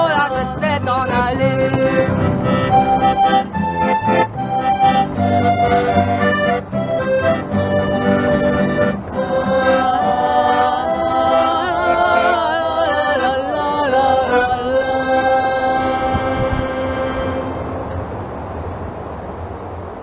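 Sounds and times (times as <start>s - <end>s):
button accordion: 0.0s - 18.0s
plucked strings: 0.0s - 18.0s
women singing together: 9.7s - 15.0s.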